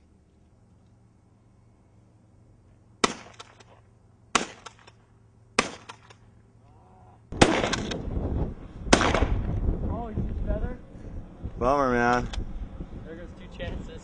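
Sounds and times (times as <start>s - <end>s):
gunshots with echo: 7.4s - 7.9s.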